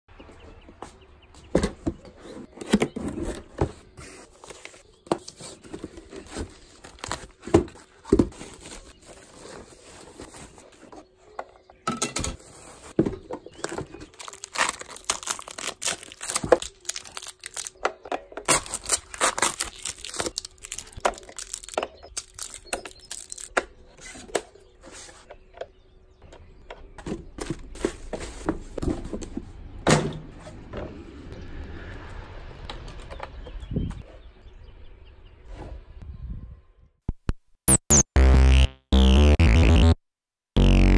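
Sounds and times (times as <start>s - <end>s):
cardboard and paper rustling: 1.6s - 11.4s, 12.4s - 17.8s, 18.4s - 23.5s, 27.1s - 29.4s.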